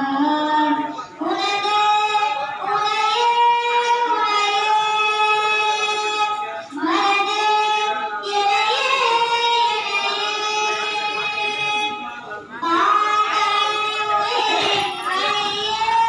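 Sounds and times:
girl singing devotional song: 0.0s - 16.0s.

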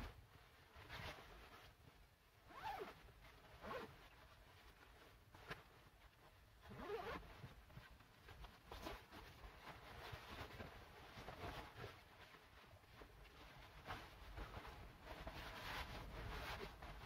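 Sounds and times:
nylon jacket zipping and rustling: 2.4s - 4.2s, 6.6s - 7.5s.

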